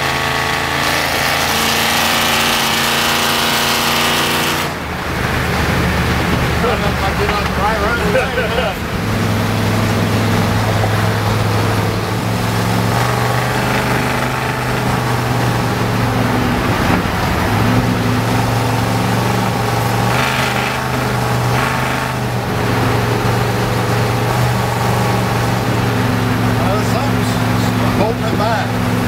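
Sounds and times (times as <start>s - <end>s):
low engine drone: 0.0s - 29.0s
road and wind noise: 0.0s - 29.0s.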